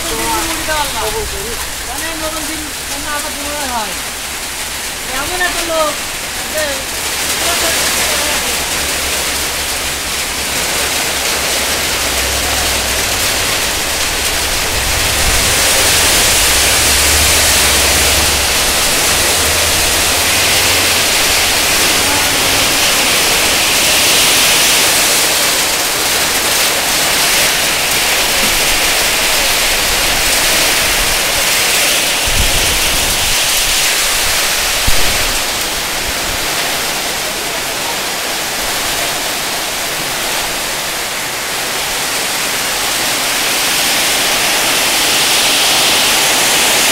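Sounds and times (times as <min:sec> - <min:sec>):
heavy rain on road: 0:00.0 - 0:46.9
low rumble: 0:08.8 - 0:26.6.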